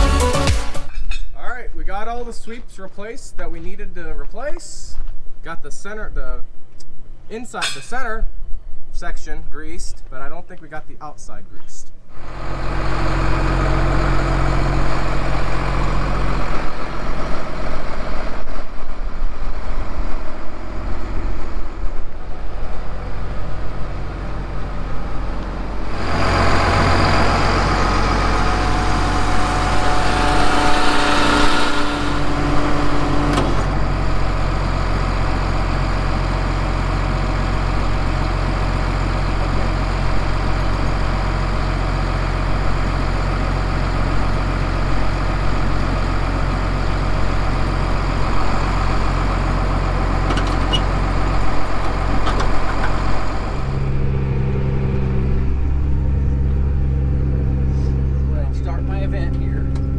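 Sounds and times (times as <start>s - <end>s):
tractor diesel engine idling: 12.2s - 59.9s.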